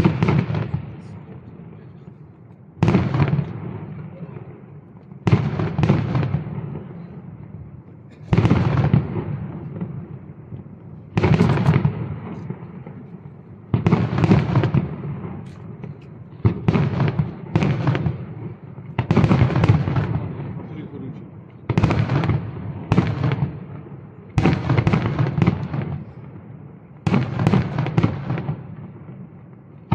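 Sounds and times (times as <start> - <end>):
firework shells bursting: 10.6 - 20.2.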